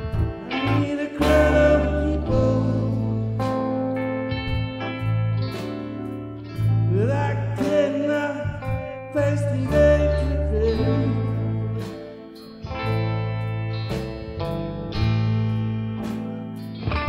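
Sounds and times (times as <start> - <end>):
rock band playing: 0.0 - 17.0
man singing: 0.4 - 3.9, 6.9 - 12.2.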